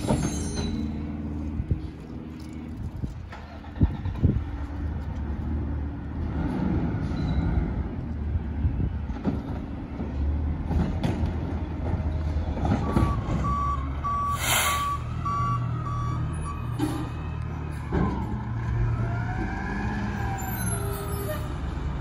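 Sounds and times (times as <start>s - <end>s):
diesel engine running: 0.0s - 22.0s
backup alarm beeping: 12.8s - 16.8s
air hiss: 14.3s - 14.9s.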